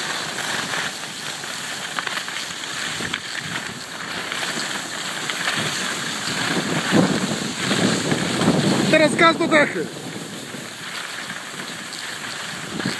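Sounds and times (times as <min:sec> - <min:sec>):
skis sliding over packed snow: 0:00.0 - 0:12.9.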